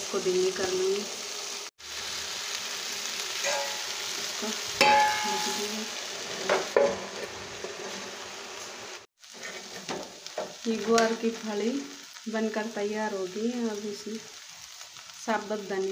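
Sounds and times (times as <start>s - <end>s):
vegetables sizzling in a pan: 0.0s - 15.9s
steel clinking on steel: 3.4s - 4.0s.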